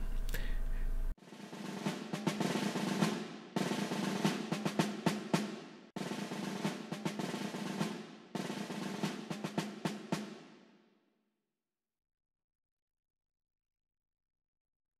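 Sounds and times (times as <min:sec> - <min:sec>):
steady low tone: 0:00.0 - 0:01.2
snare drum rolls: 0:01.2 - 0:10.7.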